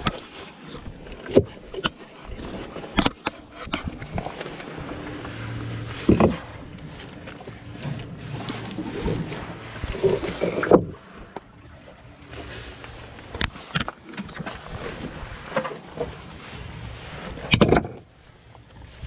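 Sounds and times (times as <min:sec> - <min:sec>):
wind on microphone: 0:03.4 - 0:11.8.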